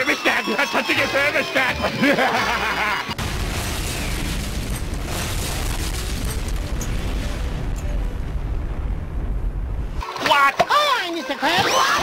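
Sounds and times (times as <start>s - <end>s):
explosion boom and deep rumble: 3.2s - 10.0s.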